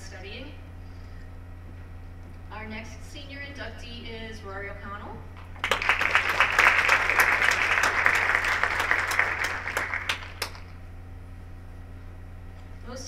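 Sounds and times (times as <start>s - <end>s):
audience applauding: 5.5s - 10.7s.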